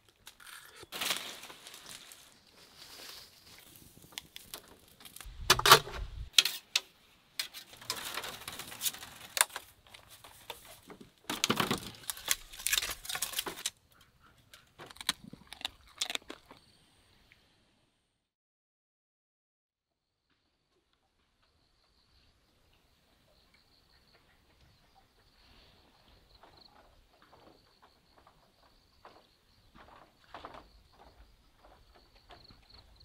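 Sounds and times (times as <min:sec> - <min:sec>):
leaves and bamboo rustling: 0:00.0 - 0:13.8.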